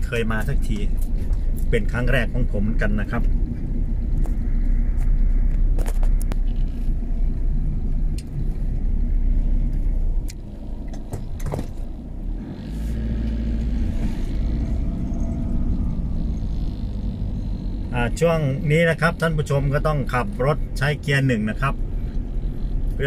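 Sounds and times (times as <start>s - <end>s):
car engine and tyre rumble: 0.0s - 23.0s
knocks from road bumps: 10.9s - 11.8s.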